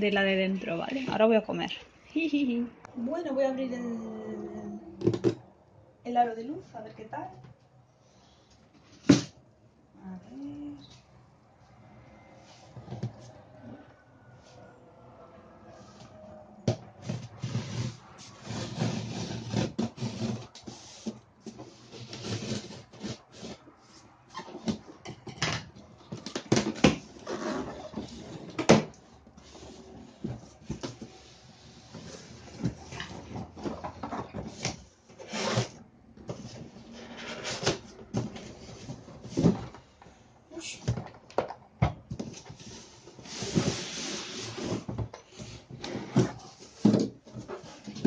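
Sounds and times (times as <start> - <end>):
cardboard box scraping and rustling: 17.0 - 24.7, 42.3 - 48.0.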